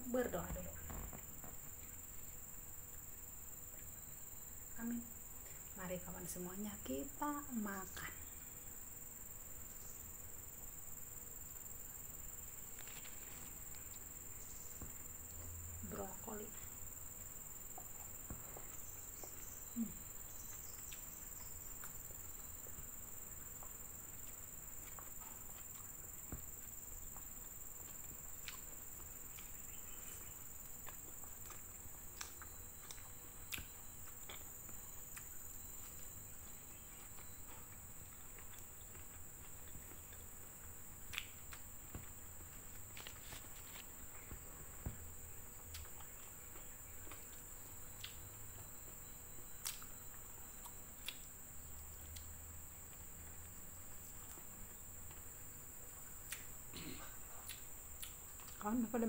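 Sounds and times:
insects trilling: 0.0 - 59.0
person chewing food: 16.6 - 58.6.

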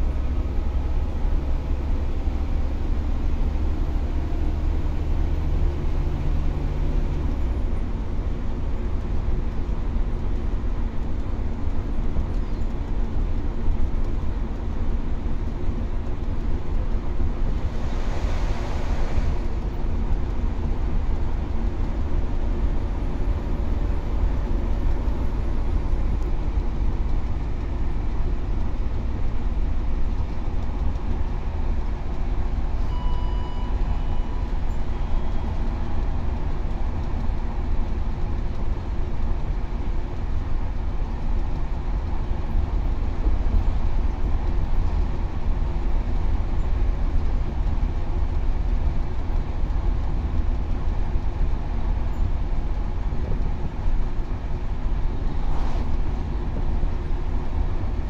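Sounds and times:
bus engine and tyres rumbling: 0.0 - 58.0.

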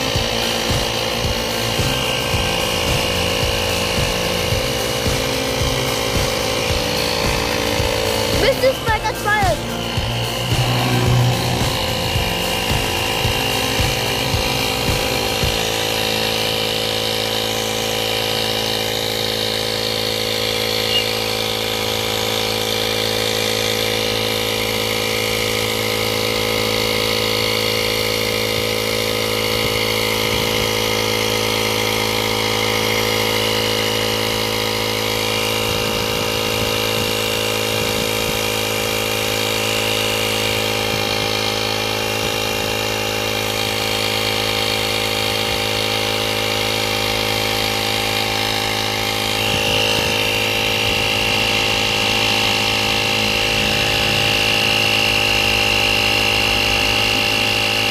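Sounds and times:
tyre inflator compressor running: 0.0 - 57.9.

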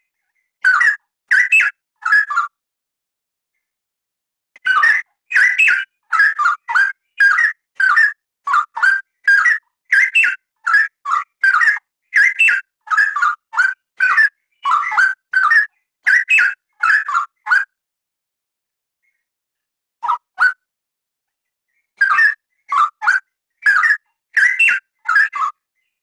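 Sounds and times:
bird singing whistled phrases: 4.6 - 17.7, 22.0 - 25.6.

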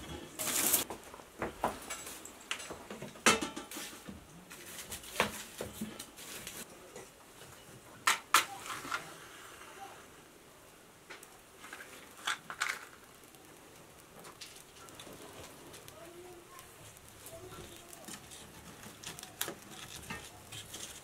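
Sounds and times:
dry sticks rustling and clacking: 0.0 - 9.1, 11.1 - 21.0.

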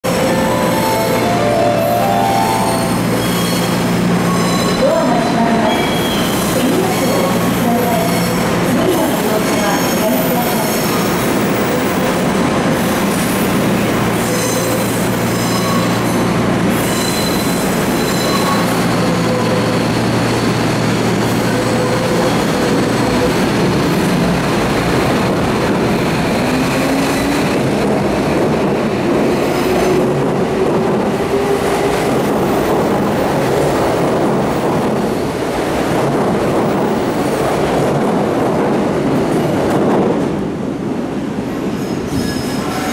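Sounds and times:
electric train hum: 0.0 - 42.1.

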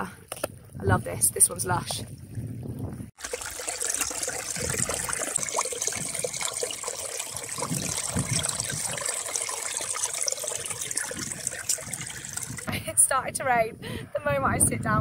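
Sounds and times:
flask gurgling underwater: 2.6 - 12.8
stream running over rocks: 3.2 - 12.7.

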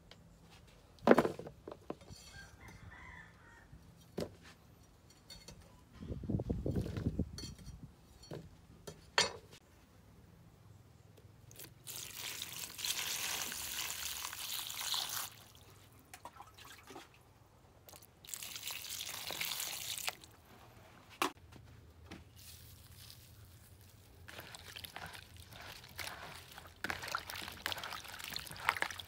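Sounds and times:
water pouring onto vegetables: 11.5 - 15.8, 17.9 - 20.3, 22.4 - 29.0.

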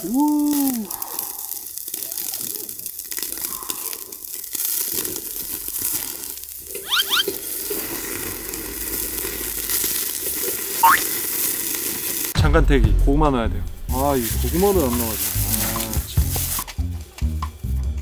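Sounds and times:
fat crackling: 0.0 - 12.4, 13.7 - 16.8
meat sizzling on grill: 0.0 - 12.4, 13.9 - 16.9
tongs squeaking: 6.8 - 7.4, 10.8 - 11.0.

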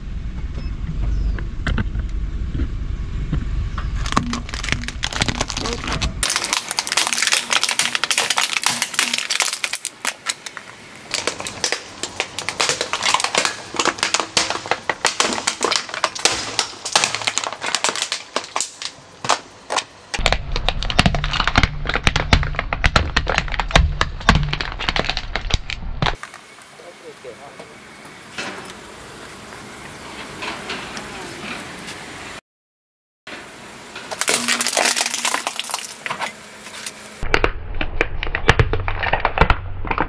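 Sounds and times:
low rumble: 0.0 - 7.9, 20.2 - 26.2, 37.2 - 40.0
plastic toy cracking under tyre: 4.0 - 26.2, 34.2 - 36.1, 37.3 - 40.0.

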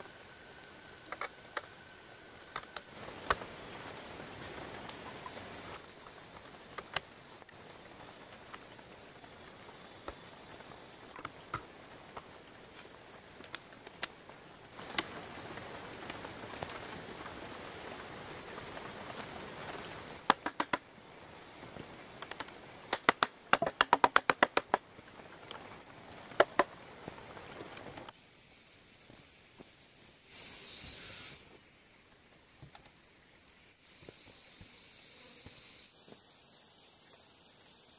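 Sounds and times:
steady hiss: 0.0 - 37.9
rapid sharp knocks: 23.0 - 24.8.

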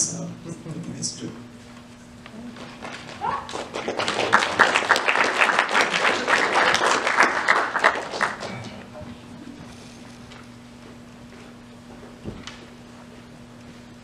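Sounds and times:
audience applauding: 2.8 - 8.7.

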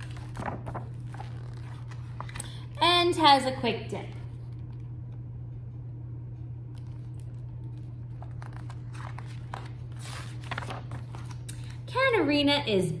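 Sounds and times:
book pages rustling: 0.0 - 2.8, 4.0 - 5.0, 6.7 - 11.8
steady low hum: 0.0 - 13.0.

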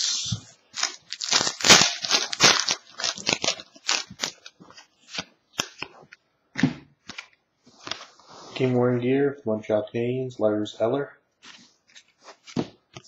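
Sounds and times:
trading cards snapping and rustling: 0.8 - 6.2.

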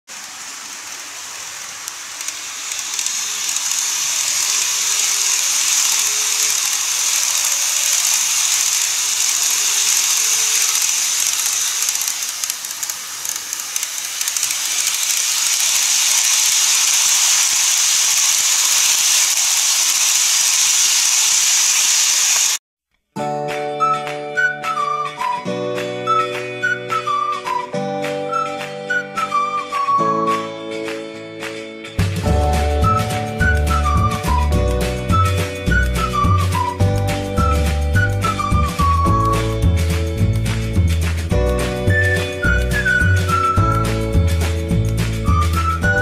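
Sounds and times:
model trains running on track: 0.1 - 22.6, 32.4 - 46.0.

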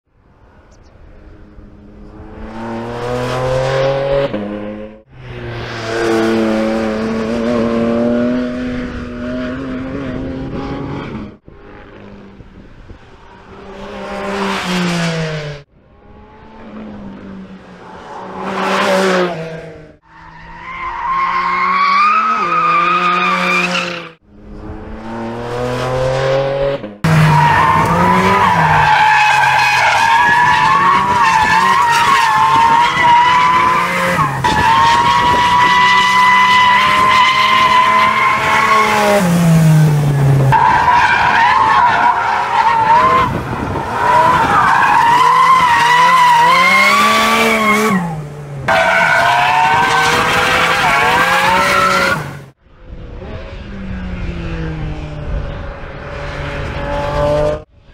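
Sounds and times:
car engine revving hard: 30.1 - 52.6.

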